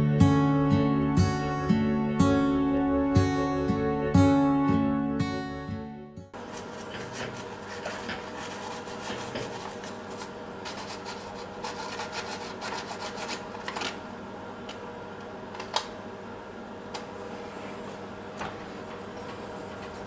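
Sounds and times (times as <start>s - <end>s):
steady hum: 0.0s - 20.0s
paper rubbing on metal: 6.4s - 13.5s.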